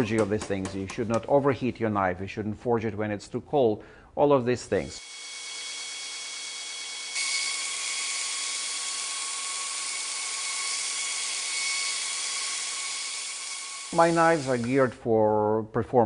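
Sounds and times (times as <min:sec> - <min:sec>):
belt grinder grinding steel: 0:05.0 - 0:14.8.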